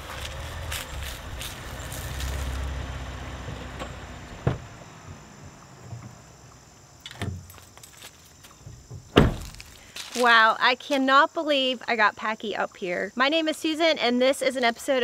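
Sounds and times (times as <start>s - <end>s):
tyres crackling on dirt track: 0.0s - 8.2s
van engine rumble: 0.0s - 9.8s
thump: 3.8s - 4.7s, 8.7s - 9.7s.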